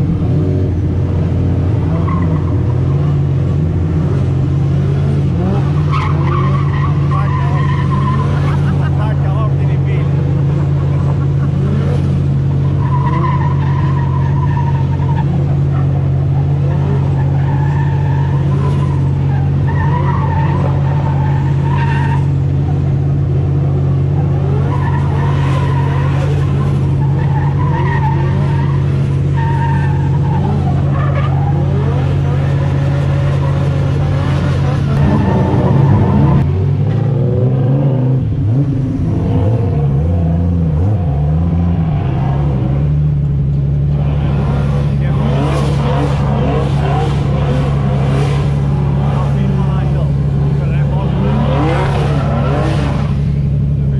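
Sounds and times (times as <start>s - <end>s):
car engine idling: 0.0s - 53.9s
car engine revving: 0.0s - 53.9s
distant tyre squeal: 1.8s - 3.5s, 5.4s - 23.1s, 24.0s - 36.5s, 43.8s - 53.8s.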